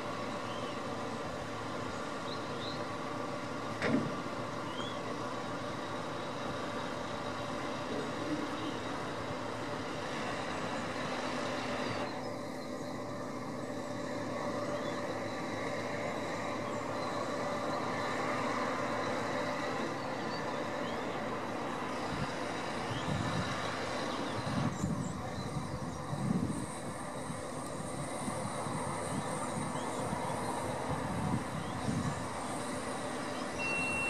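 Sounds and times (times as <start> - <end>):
diesel engine running: 0.0 - 34.0.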